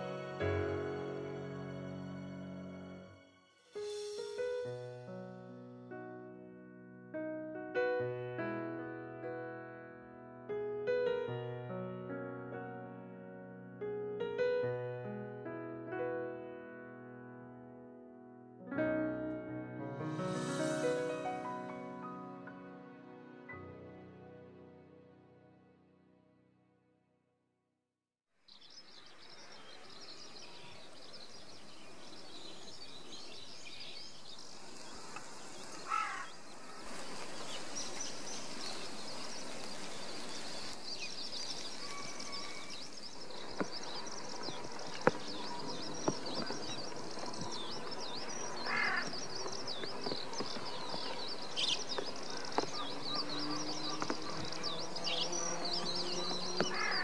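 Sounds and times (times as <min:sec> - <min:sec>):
small birds chirping: 0:28.5 - 0:57.0
louder lower bird calls: 0:48.6 - 0:49.3, 0:51.4 - 0:57.0.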